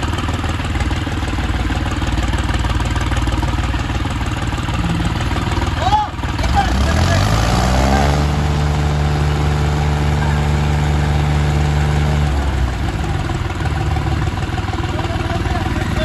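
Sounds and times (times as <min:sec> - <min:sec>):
tractor engines at full revs: 0:00.0 - 0:16.0.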